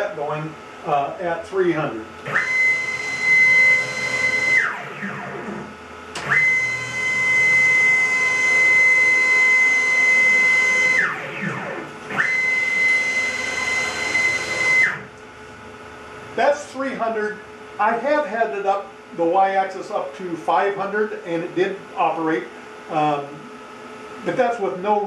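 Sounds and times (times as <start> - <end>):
stepper motors whining: 2.2 - 15.2.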